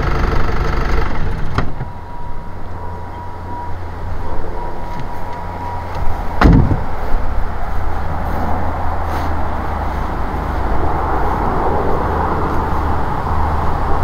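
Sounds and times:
engine idling low rumble: 0:00.0 - 0:14.0
car door shutting: 0:01.4 - 0:02.0, 0:05.9 - 0:07.0
thin steady tone: 0:01.8 - 0:14.0.

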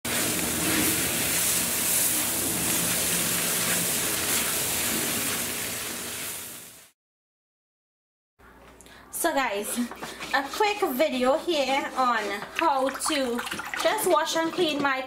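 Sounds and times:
spatula tossing in a wok: 0:00.1 - 0:06.5, 0:09.4 - 0:15.0
noodles sizzling in a wok: 0:00.1 - 0:07.0.

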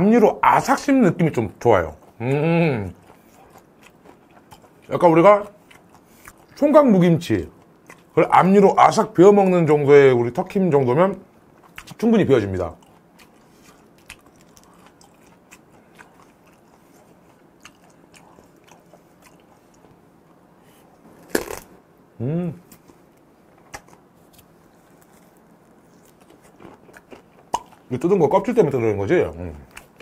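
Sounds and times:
crunching of small bones: 0:03.0 - 0:06.6, 0:12.8 - 0:20.0, 0:21.2 - 0:21.7, 0:23.6 - 0:28.6
brief hummed vocal sound: 0:22.2 - 0:22.7.

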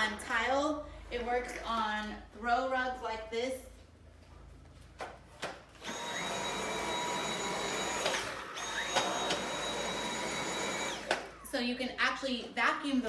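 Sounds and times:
vacuum cleaner motor whine: 0:05.8 - 0:11.6.

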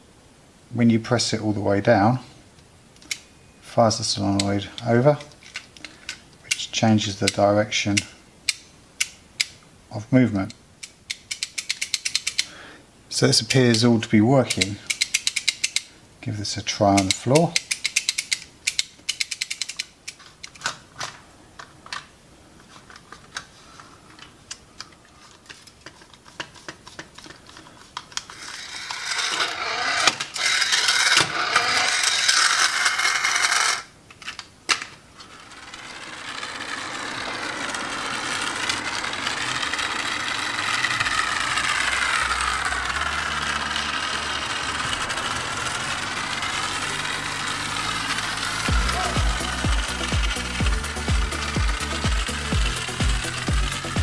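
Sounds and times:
toy car mechanism clicking: 0:03.0 - 0:03.3, 0:04.3 - 0:09.6, 0:10.4 - 0:12.5, 0:13.5 - 0:15.9, 0:16.9 - 0:22.1, 0:24.1 - 0:54.0
small electric motor and gears: 0:25.4 - 0:33.9, 0:35.2 - 0:54.0
background music with stepping bass: 0:48.7 - 0:54.0.

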